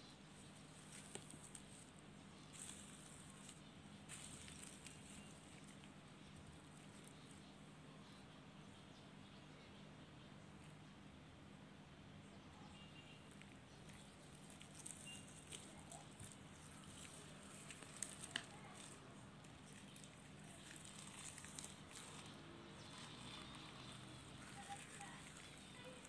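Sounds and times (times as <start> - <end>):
slime crackling and popping: 13.4 - 26.0.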